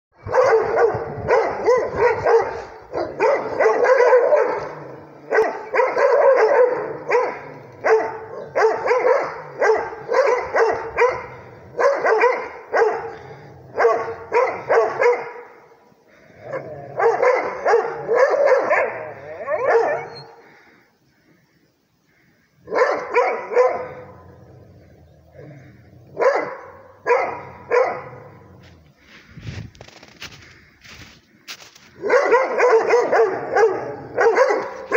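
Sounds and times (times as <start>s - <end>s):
dogs barking: 0.2s - 15.6s, 16.4s - 20.5s, 22.6s - 24.6s, 25.3s - 28.5s, 31.9s - 34.9s.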